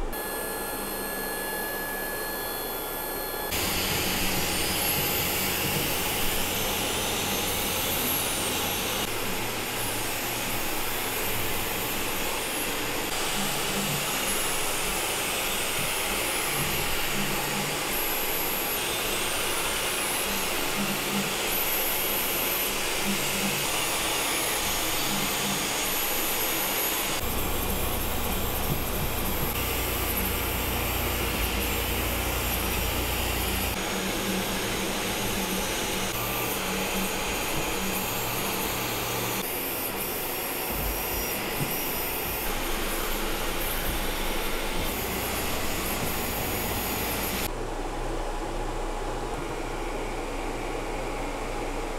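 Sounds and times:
print head motors moving: 0.0s - 47.5s
cooling fans whooshing: 27.0s - 51.9s.

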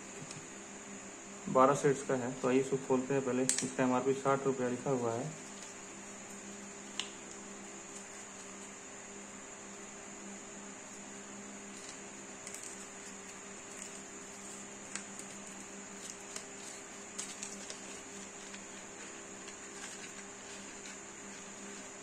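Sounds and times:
low hum with high whine: 0.0s - 22.0s
packaging crinkling and clicking: 14.8s - 21.0s.

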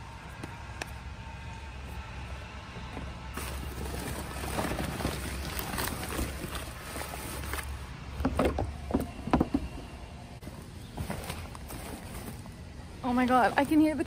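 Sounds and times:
paper and cardboard rustling: 3.4s - 7.8s, 10.5s - 12.6s.

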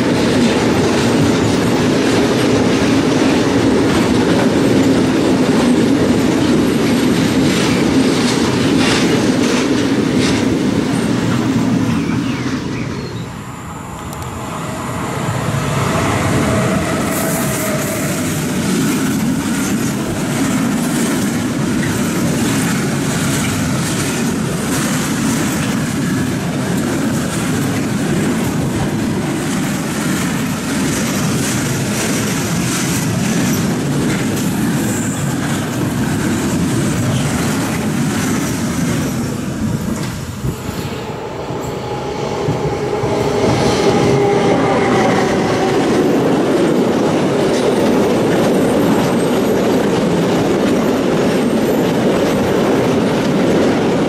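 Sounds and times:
freight train rumbling by: 0.0s - 54.0s.

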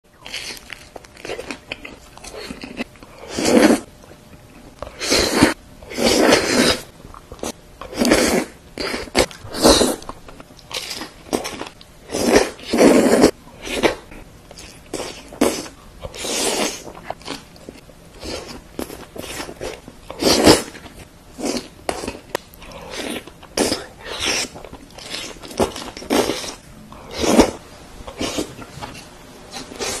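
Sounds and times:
loud slurps: 5.0s - 6.9s, 23.0s - 30.0s.

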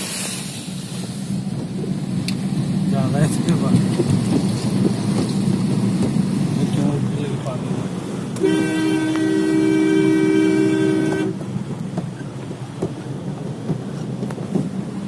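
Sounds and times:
car driving through floodwater: 0.0s - 15.0s
vehicle horn two-note chord: 8.4s - 11.4s.

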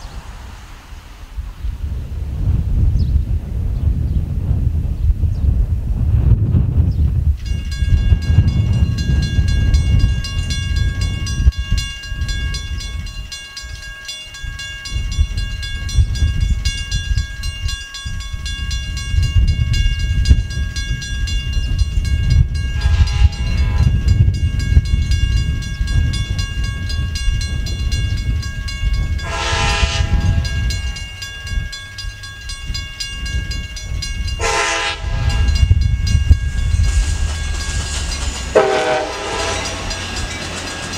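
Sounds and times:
railroad crossing bell ringing: 7.4s - 40.9s
train horn blasts: 22.7s - 24.3s, 29.1s - 31.0s, 34.3s - 35.9s, 38.5s - 40.2s.

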